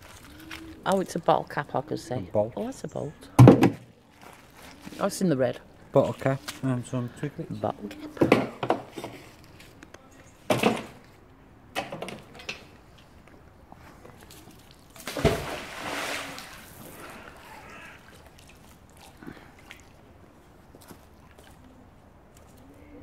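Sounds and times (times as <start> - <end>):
magnet splashing into water: 15.0 - 16.8.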